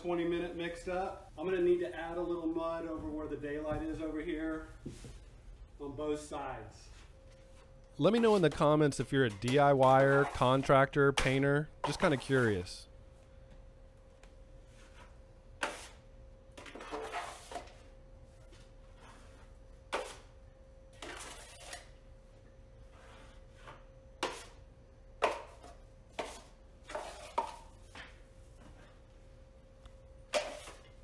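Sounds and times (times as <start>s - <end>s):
faint steady hum: 0.0s - 31.0s
taping knife scraping metal pan: 15.6s - 16.0s, 16.6s - 17.7s, 21.0s - 21.9s, 30.3s - 30.9s.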